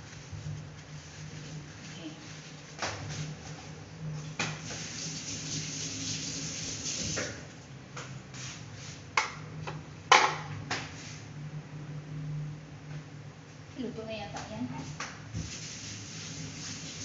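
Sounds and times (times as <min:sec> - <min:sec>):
steady low hum: 0:00.0 - 0:05.2, 0:07.4 - 0:16.7.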